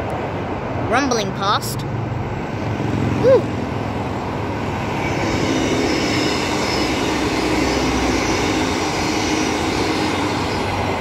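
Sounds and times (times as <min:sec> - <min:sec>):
traffic hum: 0:00.0 - 0:11.0
train rumbling past: 0:00.0 - 0:11.0
high whine: 0:02.2 - 0:11.0.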